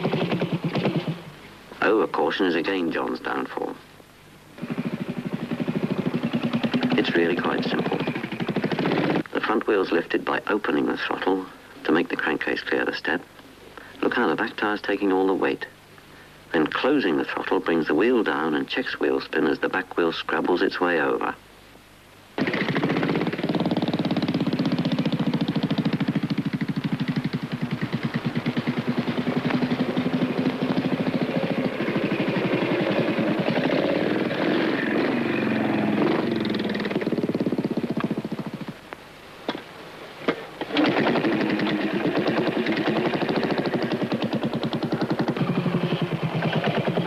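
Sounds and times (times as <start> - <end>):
motorcycle engine at low revs: 0.0 - 1.6, 4.5 - 9.3, 22.4 - 39.7, 40.3 - 47.0.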